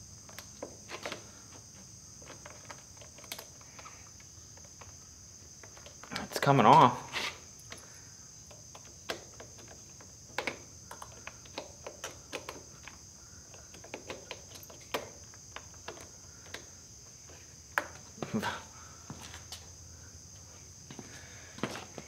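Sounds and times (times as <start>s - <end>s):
small clicks and scrapes: 2.2s - 5.0s.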